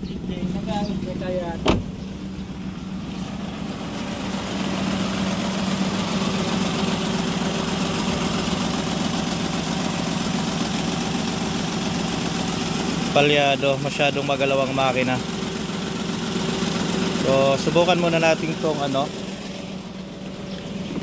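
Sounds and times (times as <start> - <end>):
car engine idling roughly: 0.0 - 21.0.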